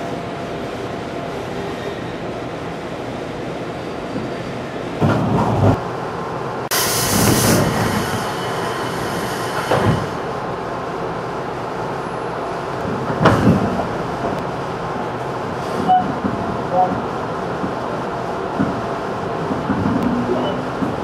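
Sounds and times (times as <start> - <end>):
train wheels rumbling on rail: 0.0 - 21.0
loud rush of hiss: 6.7 - 10.3.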